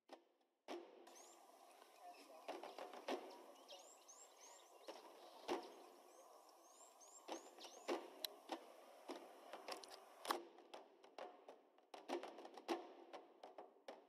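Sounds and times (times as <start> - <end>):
small birds chirping: 1.1 - 10.3
sharp clicks and knocks: 4.8 - 5.8, 7.3 - 10.4.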